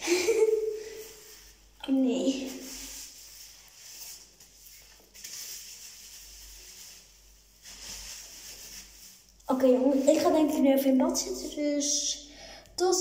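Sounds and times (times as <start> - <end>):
hands scrubbing wet hair: 0.2 - 10.4.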